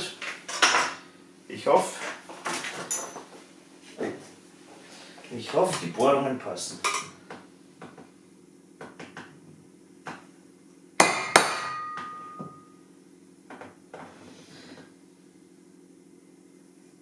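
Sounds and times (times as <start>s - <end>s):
metal ringing: 11.0s - 12.8s.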